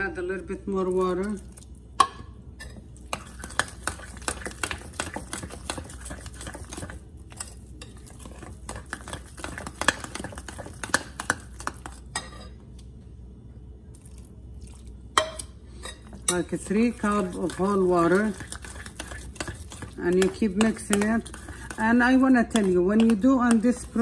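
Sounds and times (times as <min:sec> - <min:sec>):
dough scraping: 0:03.1 - 0:12.1, 0:16.5 - 0:24.0.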